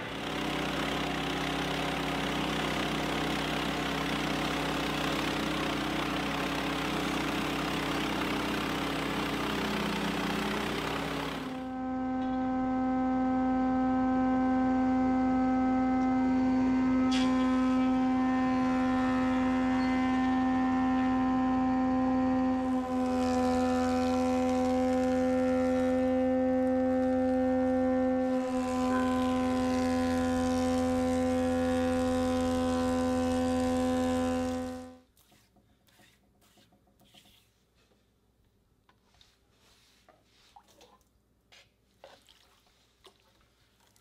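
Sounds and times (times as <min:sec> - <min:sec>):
planer cutting wood: 0:00.0 - 0:35.0
thickness planer humming: 0:00.0 - 0:35.0.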